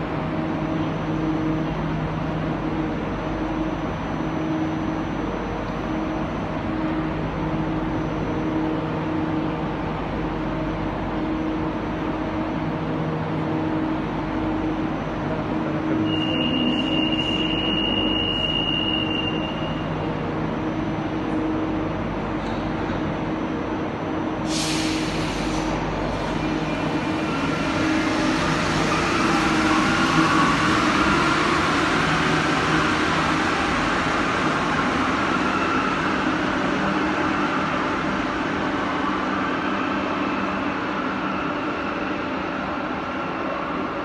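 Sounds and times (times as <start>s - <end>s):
station background noise: 0.0s - 44.0s.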